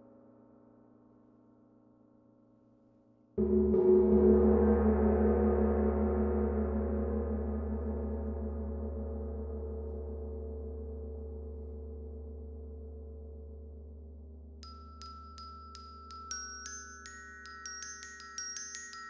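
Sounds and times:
gong struck with mallet: 3.4 - 9.7.

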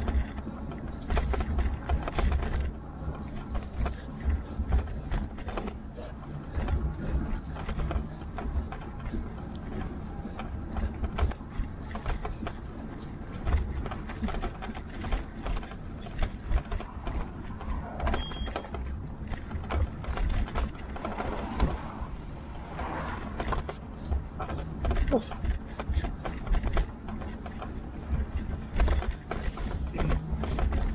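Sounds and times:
bike rattling and knocking: 0.0 - 30.9
low wind rumble: 18.8 - 27.2.

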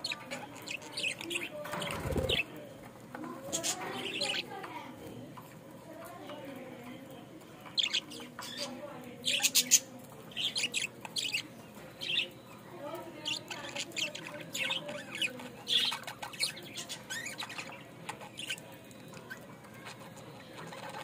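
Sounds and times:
budgerigars chirping: 13.2 - 19.4.

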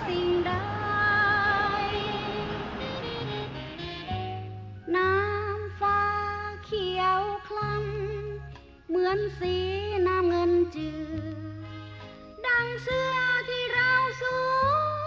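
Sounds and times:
wavering melody over bass: 0.0 - 11.7.

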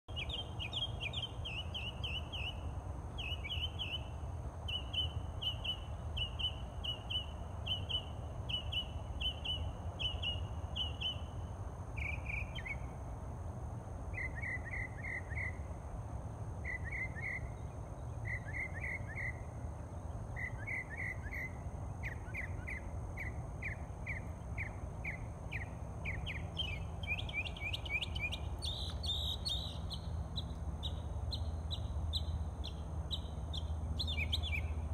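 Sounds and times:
songbird singing: 0.0 - 34.9.

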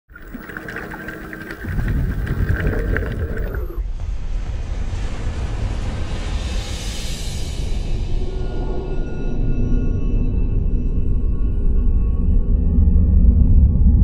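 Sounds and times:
deep rumble: 0.2 - 4.8, 12.1 - 14.0.

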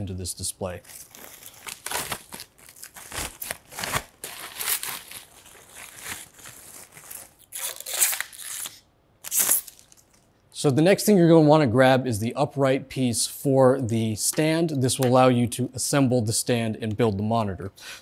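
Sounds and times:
plastic wrapping crinkling: 0.7 - 10.3.

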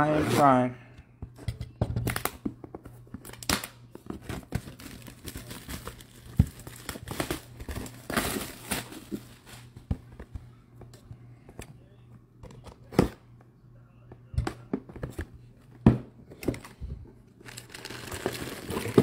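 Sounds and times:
packaging crinkling and rustling: 2.0 - 9.9, 17.4 - 19.0.

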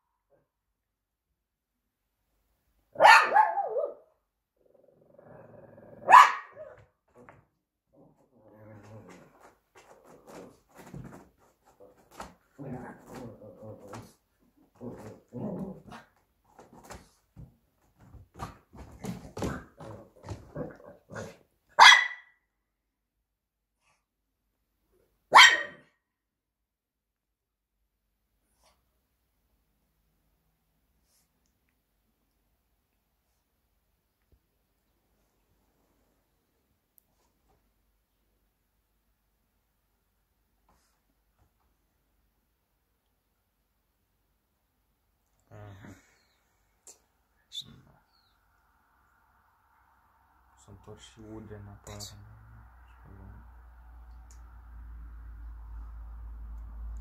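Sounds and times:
small dog barking: 2.9 - 4.1, 6.0 - 6.8, 21.7 - 22.4, 25.3 - 25.9
small dog growling: 4.6 - 6.1, 7.9 - 10.6, 12.5 - 16.2, 45.4 - 46.3.

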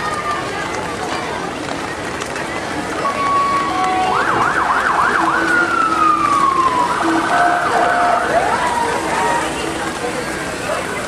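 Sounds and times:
electronic emergency siren: 3.1 - 9.8.

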